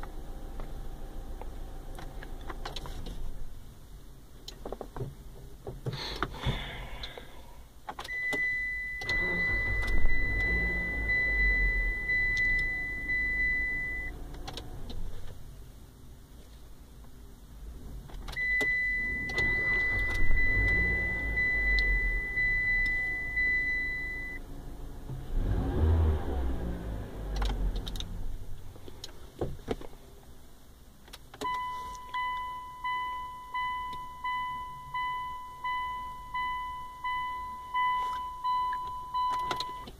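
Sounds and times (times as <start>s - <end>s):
electronic dash tone: 8.1s - 14.2s, 18.4s - 24.4s, 31.4s - 39.9s
dash warning chime: 31.5s - 39.9s.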